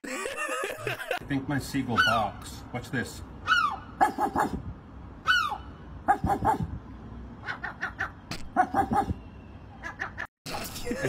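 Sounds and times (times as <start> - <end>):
seagull harsh barking calls: 1.9 - 2.3, 3.4 - 4.6, 5.2 - 6.8, 7.4 - 10.3.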